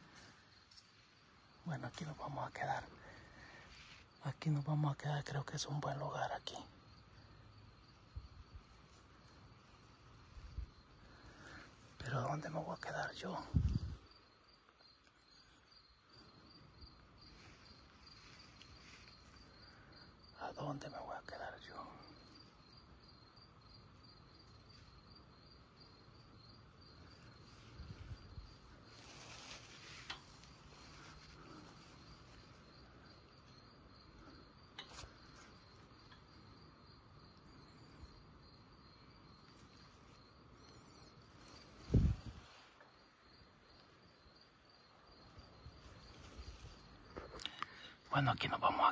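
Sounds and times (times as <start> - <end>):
cricket chirping: 0.0 - 48.9
low outdoor hiss: 0.0 - 48.9.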